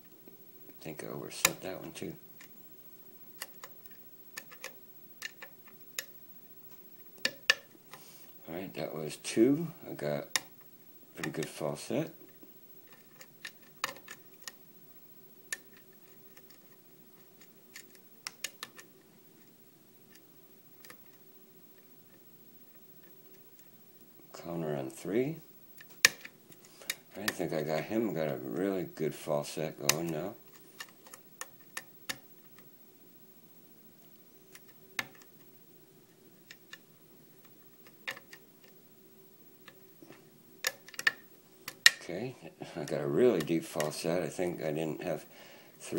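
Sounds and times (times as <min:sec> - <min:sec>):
lock pick clicking pins: 0:12.9 - 0:14.6, 0:37.8 - 0:38.4, 0:40.6 - 0:42.0.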